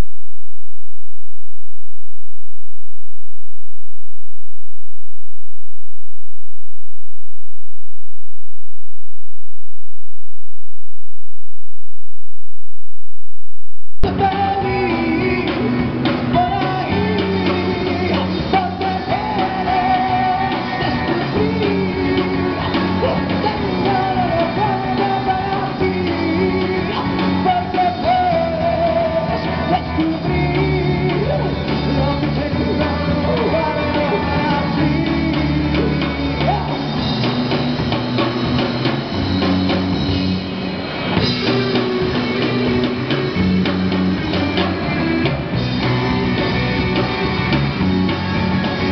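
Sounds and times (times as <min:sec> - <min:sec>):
man singing: 0:14.0 - 0:37.1
live rock band playing: 0:14.1 - 0:48.9.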